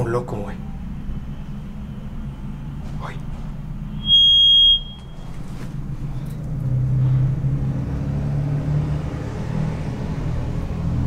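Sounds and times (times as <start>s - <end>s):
steady low rumble: 0.0s - 11.0s
high electronic radio beep: 4.0s - 5.2s.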